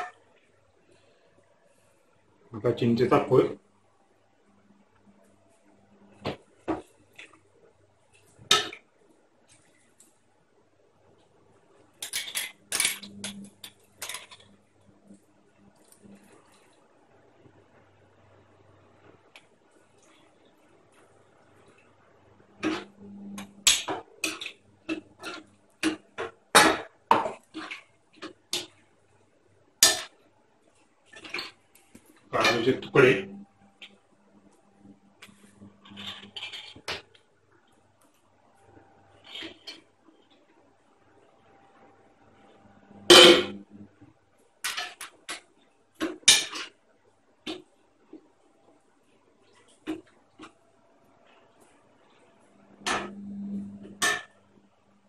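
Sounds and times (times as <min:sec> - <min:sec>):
metal spoon scraping a pot: 0:24.2 - 0:26.0, 0:35.8 - 0:37.0, 0:39.1 - 0:39.8.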